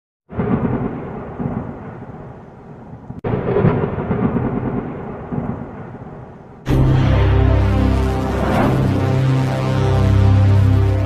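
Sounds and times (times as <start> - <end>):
thunder rumbling: 0.3 - 6.7.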